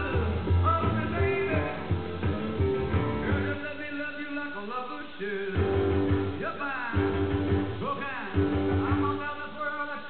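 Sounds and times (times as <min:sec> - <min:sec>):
guitar notes bending in pitch: 0:00.0 - 0:03.6
steady bass line: 0:00.0 - 0:03.6, 0:05.6 - 0:09.2.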